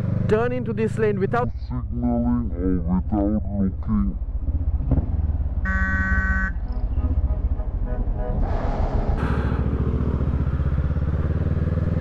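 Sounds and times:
motorcycle engine running: 0.0 - 2.0, 4.2 - 7.3, 9.2 - 12.0
vehicle horn honk: 5.6 - 8.5
loud rushing noise: 7.0 - 11.1.

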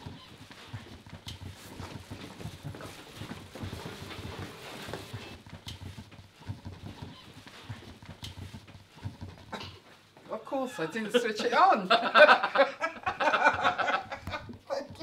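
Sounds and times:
footsteps on hard floor: 0.5 - 9.5.

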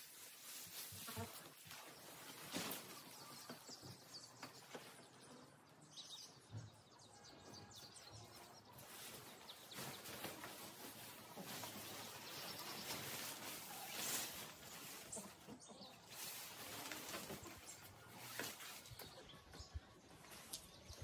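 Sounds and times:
tent fabric rustling and flapping: 8.8 - 15.2.

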